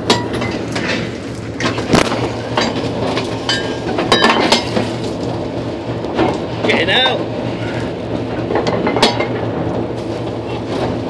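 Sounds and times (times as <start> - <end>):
rough water along hull: 0.0 - 11.0
ship engine drone: 0.0 - 11.0.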